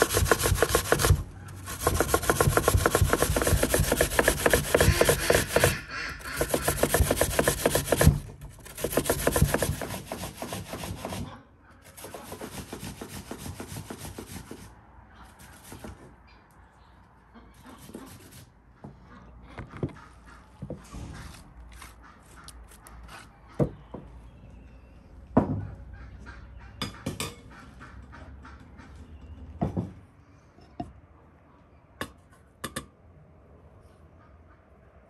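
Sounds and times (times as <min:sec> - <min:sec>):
hand grater scraping: 0:00.0 - 0:11.3.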